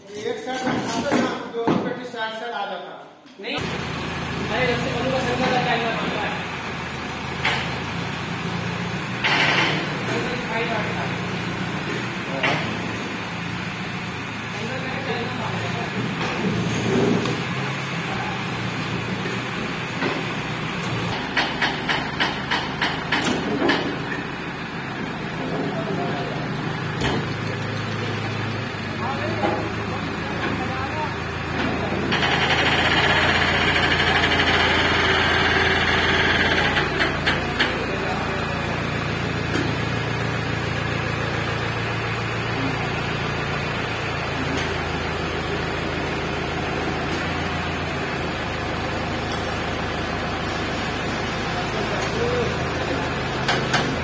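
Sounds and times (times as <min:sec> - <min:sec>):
hoist chain clanking: 0:00.0 - 0:01.6
steady background noise: 0:00.0 - 0:54.0
heavy vehicle engine idling: 0:03.6 - 0:54.0.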